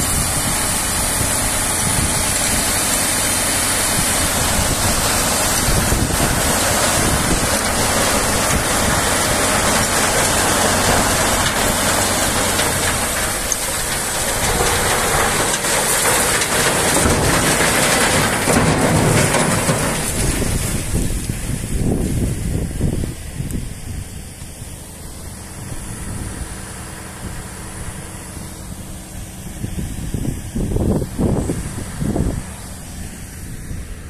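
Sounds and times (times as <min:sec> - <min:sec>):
truck diesel engine running: 0:00.0 - 0:34.0
rubble pouring from tipper: 0:02.2 - 0:21.0.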